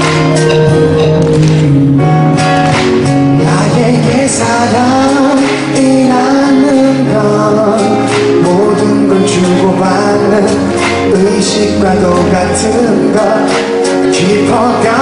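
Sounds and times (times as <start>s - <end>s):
acoustic guitar: 0.0s - 15.0s
man singing into a microphone: 3.3s - 15.0s.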